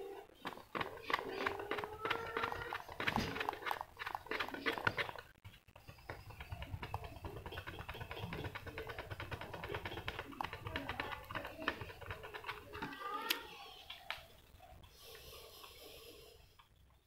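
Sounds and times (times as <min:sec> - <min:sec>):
fingertip rubbing squeaks on plastic: 0:00.4 - 0:13.4.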